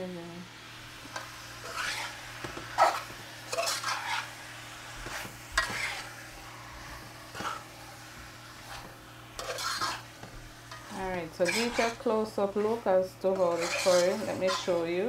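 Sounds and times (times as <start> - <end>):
low sizzle: 0.0 - 15.0
metal spoon scraping pot: 9.4 - 10.1, 10.7 - 14.9.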